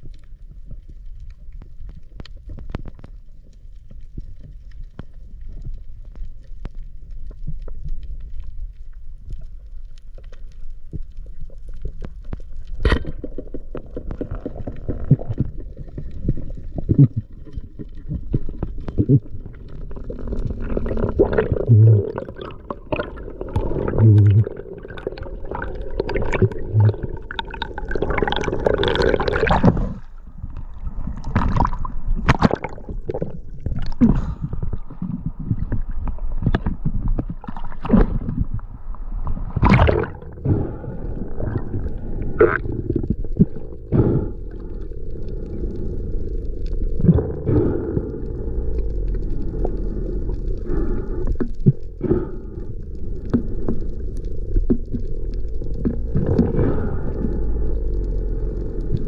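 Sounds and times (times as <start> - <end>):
water gurgling and sloshing: 0.0 - 59.0
steady low rumble: 13.5 - 59.0.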